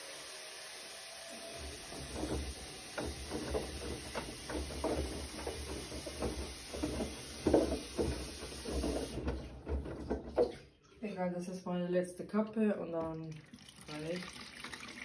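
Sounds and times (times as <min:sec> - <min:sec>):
washing machine low hum: 0:01.4 - 0:10.5
laundry sloshing in washing machine: 0:01.6 - 0:10.8.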